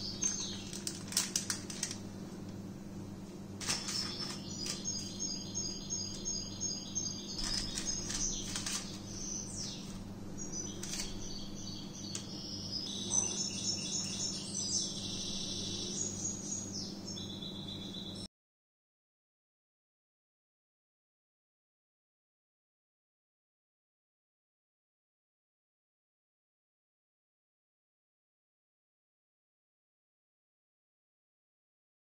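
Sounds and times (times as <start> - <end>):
bird chirping and trilling: 0.0 - 1.1, 3.7 - 18.3
low steady hum: 0.0 - 18.3
sharp clicks: 10.7 - 11.2.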